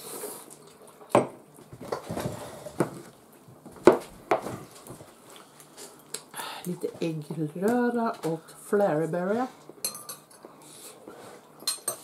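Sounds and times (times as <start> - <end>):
cutlery clinking on glass dishes: 9.8 - 10.4, 11.6 - 12.0.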